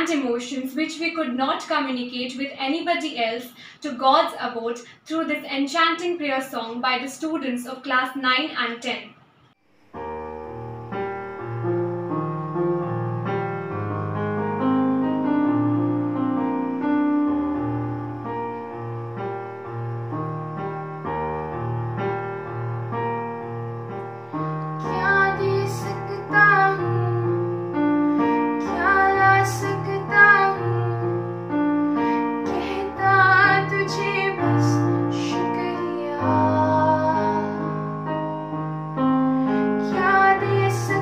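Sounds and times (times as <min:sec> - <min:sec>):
electronic keyboard chords: 0:09.6 - 0:41.0
girl singing: 0:24.8 - 0:31.4, 0:32.0 - 0:37.8, 0:39.8 - 0:41.0.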